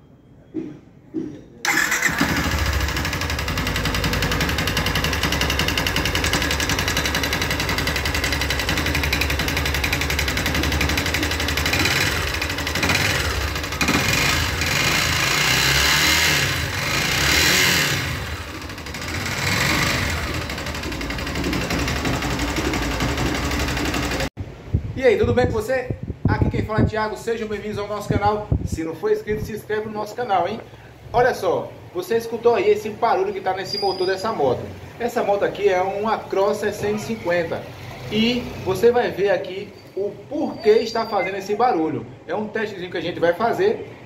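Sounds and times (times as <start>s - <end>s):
motorcycle engine knocking: 1.7s - 24.3s
man talking: 25.0s - 43.9s.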